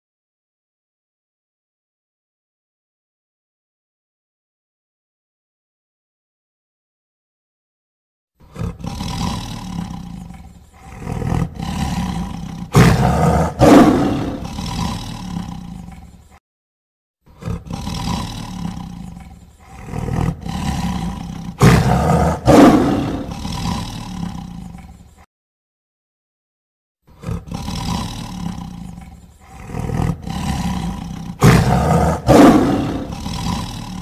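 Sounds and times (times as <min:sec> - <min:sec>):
tiger roaring and growling: 0:08.4 - 0:16.4, 0:17.3 - 0:25.3, 0:27.1 - 0:34.0.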